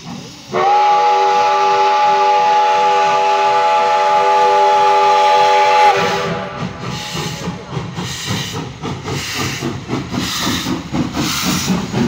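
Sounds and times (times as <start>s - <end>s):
steam hissing: 0.0s - 12.0s
steam locomotive whistle: 0.5s - 7.6s.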